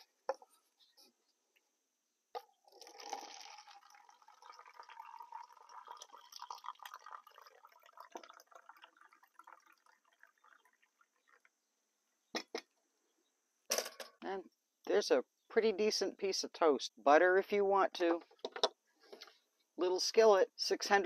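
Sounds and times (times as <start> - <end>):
coffee pouring into paper cup: 2.4 - 11.5.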